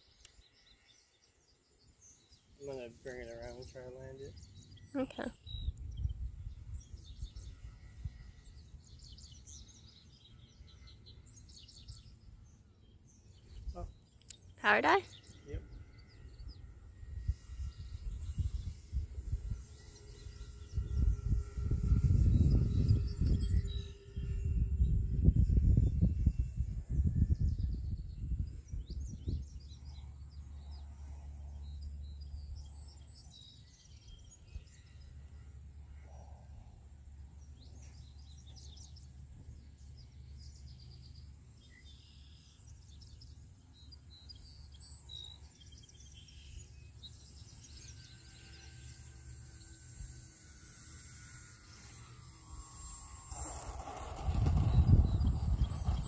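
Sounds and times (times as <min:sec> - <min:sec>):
birds chirping: 0:00.0 - 0:26.5, 0:37.4 - 0:56.0
faint high whine: 0:00.0 - 0:56.0
wind rumbling on microphone: 0:05.4 - 0:09.6, 0:15.5 - 0:31.2, 0:51.2 - 0:56.0.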